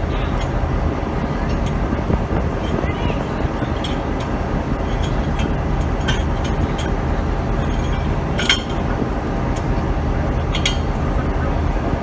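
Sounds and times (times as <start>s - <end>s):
locomotive engine idling: 0.0s - 12.0s
metallic coupling clinks: 3.8s - 7.0s, 7.6s - 9.7s, 10.4s - 11.0s.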